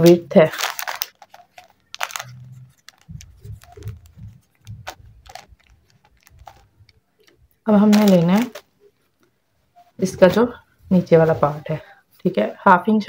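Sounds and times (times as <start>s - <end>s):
paper handling: 0.4s - 8.7s.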